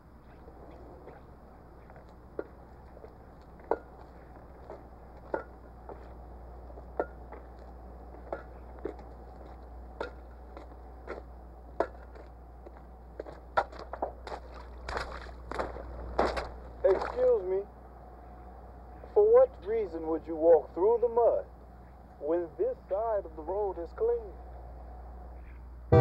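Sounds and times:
low steady hum: 0.0 - 26.0
footsteps on wet dirt road: 0.1 - 17.5.

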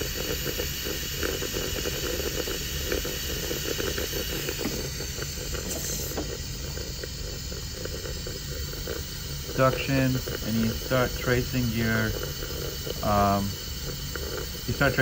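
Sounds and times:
steady hissing noise: 0.0 - 15.0.

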